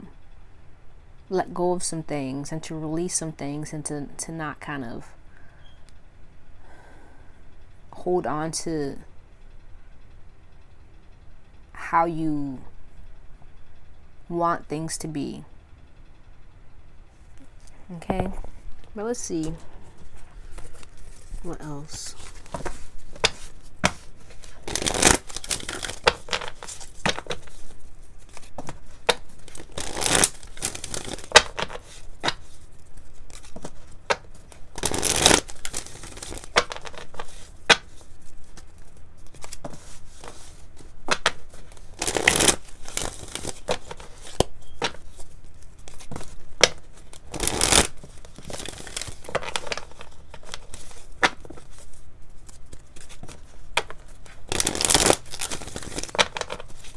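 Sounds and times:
cards being shuffled: 0:19.4 - 0:56.9.

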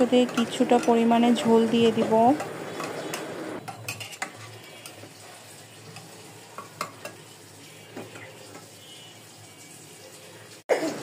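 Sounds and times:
ladle stirring in pot: 0:00.0 - 0:09.3
soft sizzle of cooking: 0:00.0 - 0:11.0
ladle clinking against pot: 0:02.4 - 0:05.1, 0:06.0 - 0:07.2.

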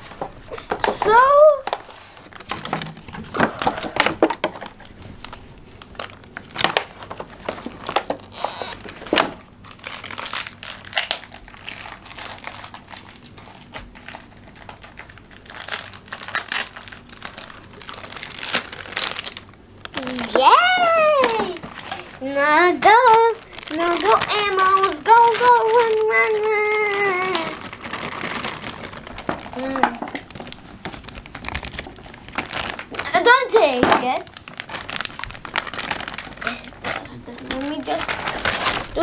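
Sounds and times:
plastic packaging crinkling: 0:00.0 - 0:39.0.

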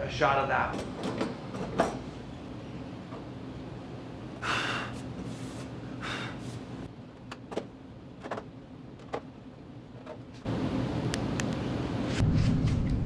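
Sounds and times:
short breathy hisses: 0:04.4 - 0:06.6.

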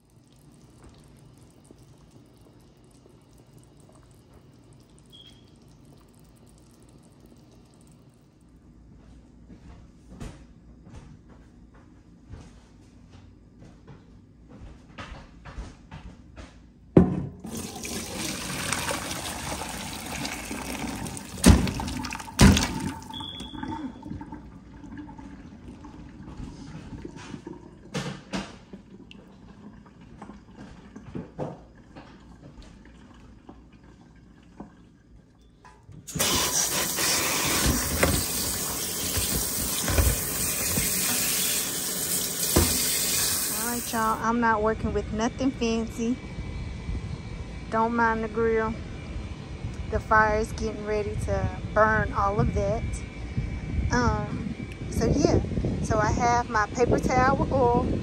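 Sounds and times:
water running from a tap: 0:00.0 - 0:08.2, 0:17.4 - 0:30.6, 0:36.1 - 0:44.2.

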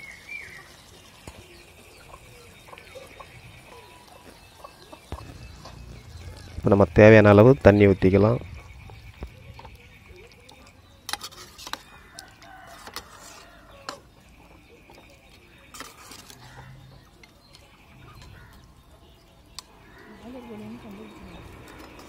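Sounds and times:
chickens clucking: 0:01.2 - 0:10.9.

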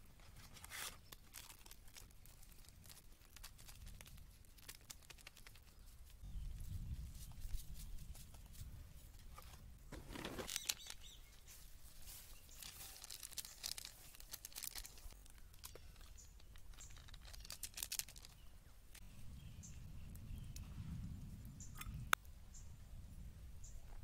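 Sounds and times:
plastic packet crinkling: 0:00.4 - 0:05.8, 0:10.1 - 0:11.1, 0:12.1 - 0:18.4.

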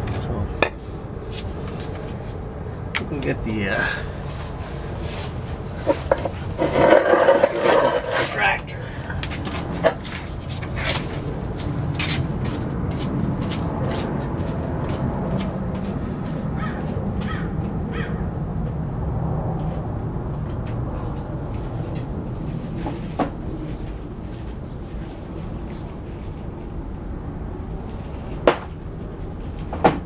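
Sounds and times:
hand tools clinking and knocking: 0:05.8 - 0:11.2.

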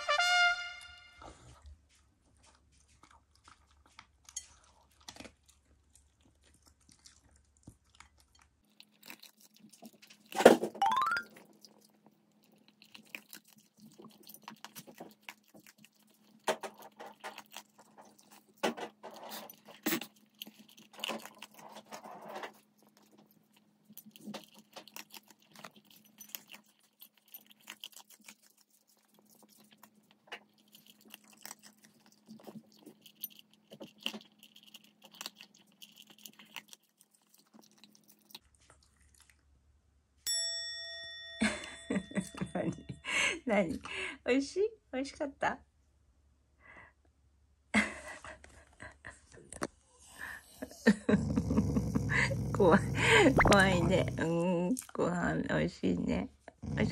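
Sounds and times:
dog chewing crunchy food: 0:02.2 - 0:10.6, 0:11.3 - 0:39.5, 0:51.2 - 0:55.0.

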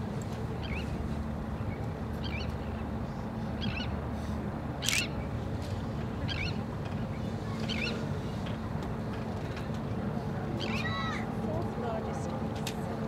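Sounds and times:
short chirping bird calls: 0:04.8 - 0:05.2.

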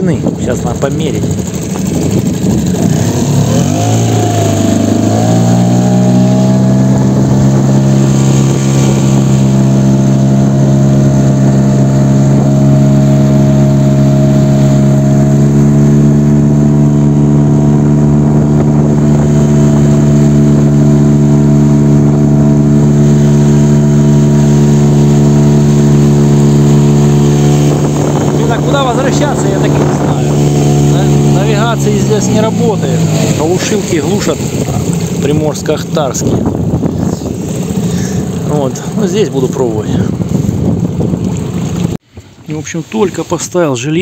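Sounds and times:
outboard motor running: 0:00.0 - 0:44.0.

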